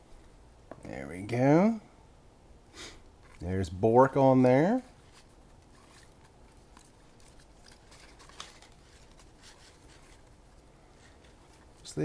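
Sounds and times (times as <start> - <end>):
cards flicking and rustling: 5.0 - 12.0.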